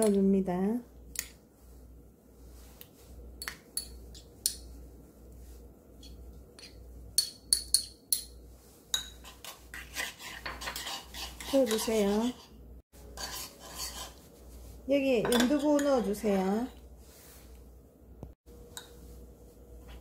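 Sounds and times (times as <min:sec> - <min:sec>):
metal spoon clinking on ceramic: 0:03.4 - 0:04.7, 0:06.0 - 0:09.3, 0:15.2 - 0:16.1.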